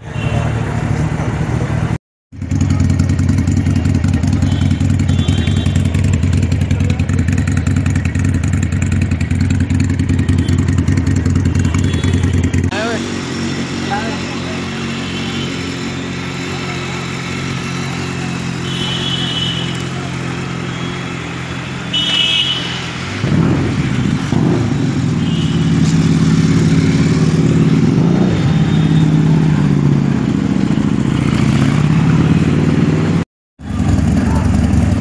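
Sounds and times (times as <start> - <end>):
motorcycle engines idling: 0.5 - 23.2, 23.8 - 35.0
motorcycle engine revving: 0.6 - 35.0.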